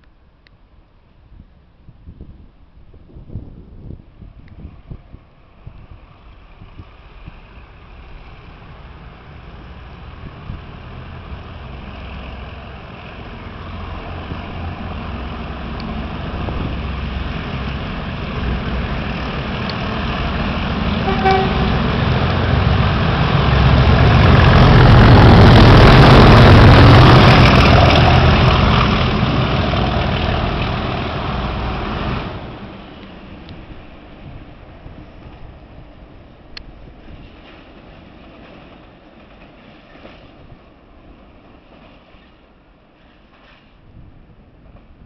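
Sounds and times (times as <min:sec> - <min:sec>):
diesel locomotives passing: 0:00.0 - 0:45.0.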